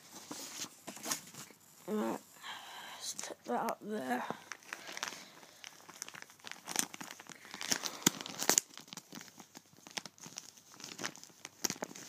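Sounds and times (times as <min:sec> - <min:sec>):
plastic bag crinkling: 0:03.2 - 0:12.0.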